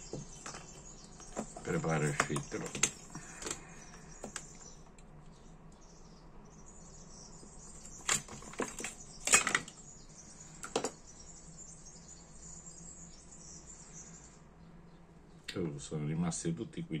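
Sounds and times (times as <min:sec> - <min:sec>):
metal parts clicking in plastic box: 0:00.4 - 0:04.6.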